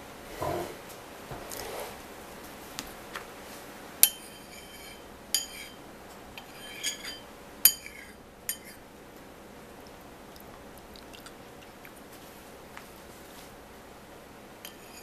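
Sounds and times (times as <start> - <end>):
metal spoon clinking ceramic bowl: 4.0 - 5.8, 6.4 - 8.8, 14.6 - 15.0.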